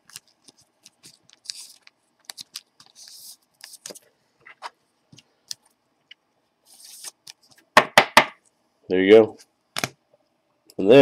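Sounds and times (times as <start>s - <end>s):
plastic sleeve rustling: 0.0s - 4.1s.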